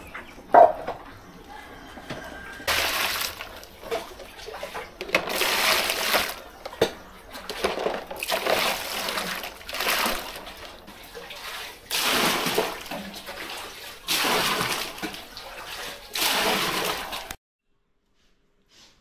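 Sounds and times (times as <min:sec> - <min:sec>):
water splashing into basin: 0:02.7 - 0:17.4.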